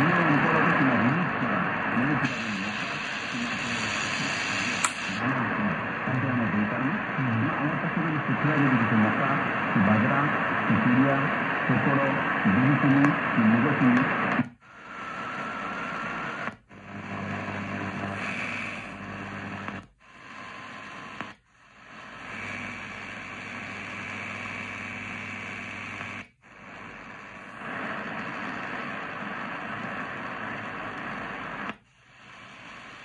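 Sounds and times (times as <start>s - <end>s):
faint hum: 0.0s - 33.0s
radio static hiss: 0.0s - 33.0s.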